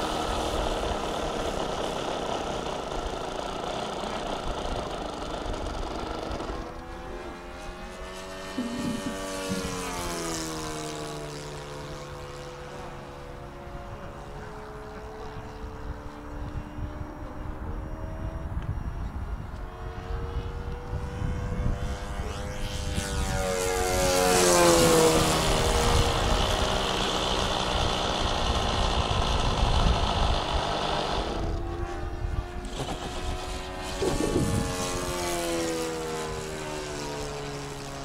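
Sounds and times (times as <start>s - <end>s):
model plane engine flying by: 0.0s - 38.0s.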